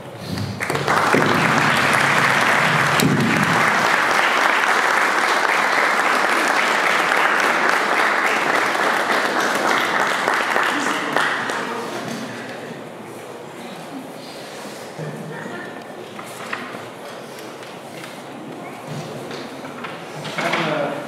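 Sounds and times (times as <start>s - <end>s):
guests applauding: 0.4s - 12.6s.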